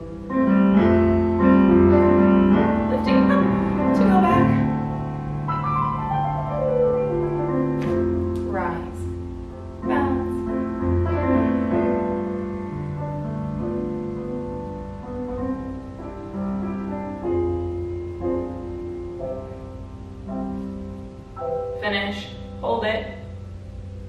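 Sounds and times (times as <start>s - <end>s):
slow solo piano: 0.0s - 24.0s.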